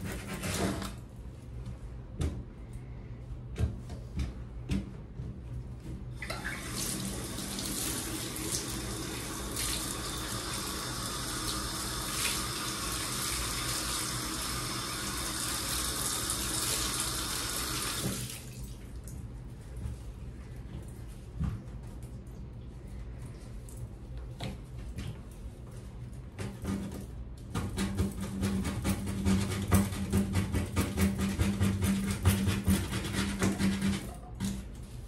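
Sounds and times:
water tap running: 0:06.2 - 0:19.0.

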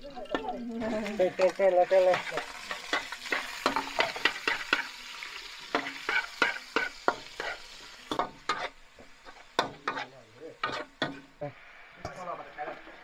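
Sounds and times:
meat sizzling in a wok: 0:00.0 - 0:13.0
spatula scraping a pan: 0:00.2 - 0:11.4.

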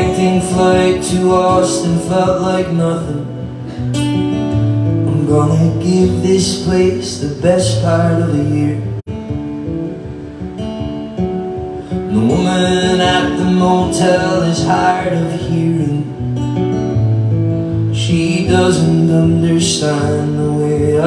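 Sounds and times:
person singing: 0:00.0 - 0:03.6, 0:11.9 - 0:16.2, 0:18.0 - 0:21.0
acoustic guitars playing: 0:00.0 - 0:21.0.

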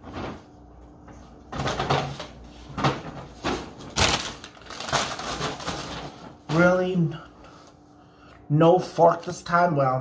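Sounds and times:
paper bag rustling: 0:01.6 - 0:07.0.

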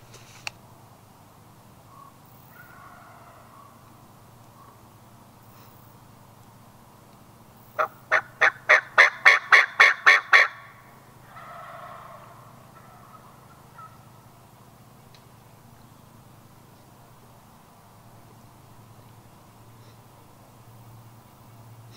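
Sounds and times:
turkey yelps: 0:01.9 - 0:03.8, 0:07.8 - 0:14.1.

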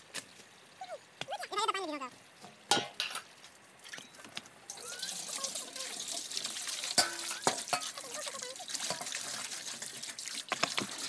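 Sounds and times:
water splashing into steel basin: 0:04.7 - 0:11.0.

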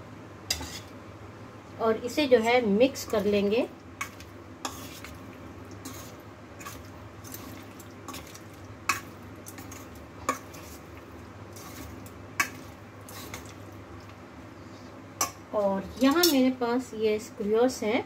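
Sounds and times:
spoon stirring thick marinade: 0:04.0 - 0:13.7
spoon clinking against metal bowl: 0:16.0 - 0:16.4.

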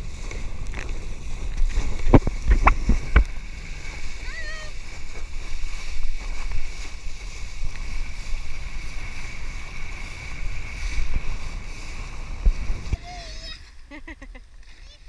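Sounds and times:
wind buffeting microphone: 0:00.0 - 0:13.4
water rushing: 0:00.0 - 0:13.7.

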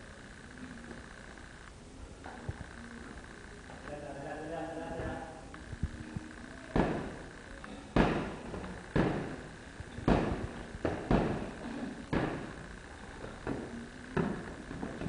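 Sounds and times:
gloved punches thudding: 0:06.7 - 0:07.2, 0:07.9 - 0:09.4, 0:10.0 - 0:12.6.

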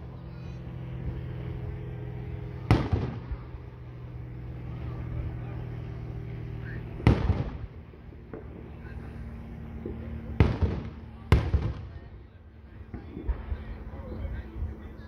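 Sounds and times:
low hum: 0:00.0 - 0:15.0
firework shells booming: 0:02.7 - 0:03.4, 0:07.0 - 0:08.7, 0:09.8 - 0:12.1.

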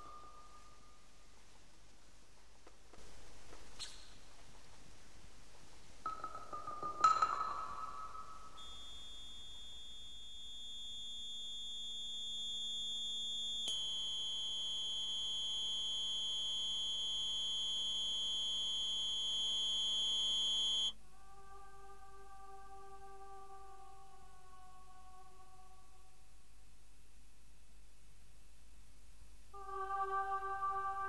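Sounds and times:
high-pitched electronic tone: 0:08.6 - 0:21.0.

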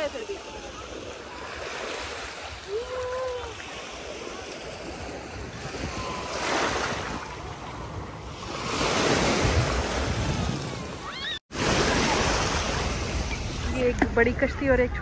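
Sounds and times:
small waves washing: 0:00.0 - 0:14.5.

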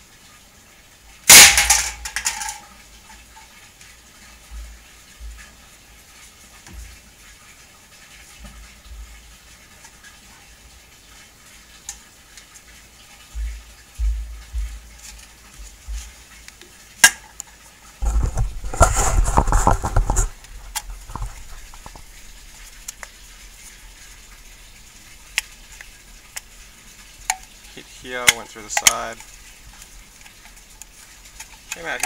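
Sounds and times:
low thumps: 0:13.4 - 0:16.2.

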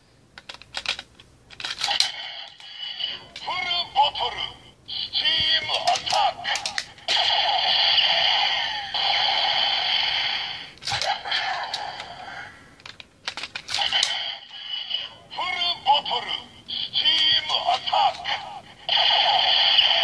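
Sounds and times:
plastic clicks: 0:00.3 - 0:02.6, 0:05.8 - 0:06.9, 0:12.8 - 0:14.1
toy gun electronic sound effects: 0:01.7 - 0:04.3, 0:04.9 - 0:12.2, 0:13.7 - 0:20.0
electronic voice calls: 0:03.1 - 0:06.6, 0:14.9 - 0:18.6
hissing effect with tones: 0:06.4 - 0:12.6.

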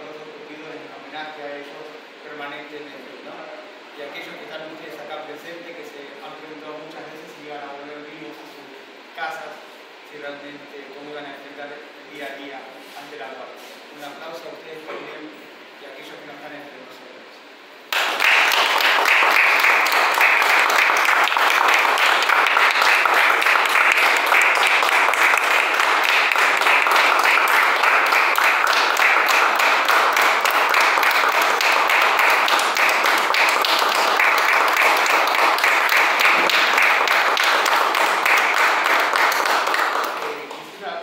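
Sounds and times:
audience applauding: 0:17.9 - 0:40.6.

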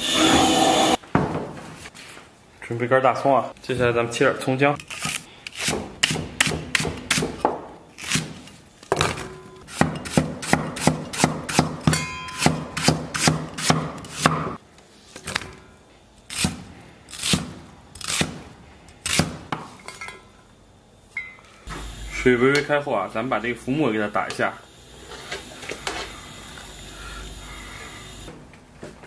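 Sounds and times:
cleaver chopping on wooden block: 0:09.7 - 0:14.5.

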